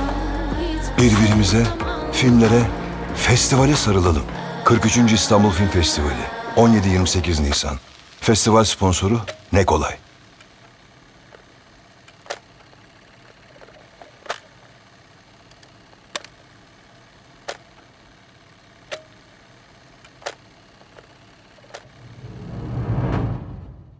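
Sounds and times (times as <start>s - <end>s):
low swell: 22.0s - 23.9s.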